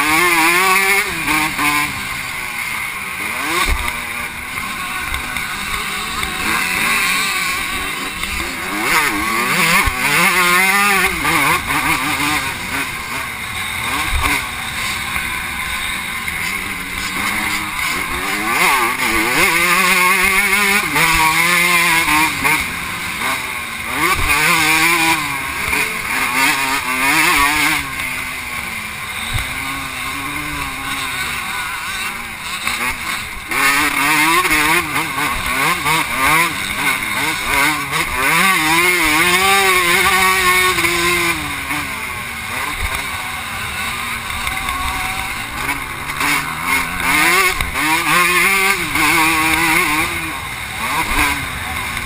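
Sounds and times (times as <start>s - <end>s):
motocross bike revving: 0.0s - 52.0s.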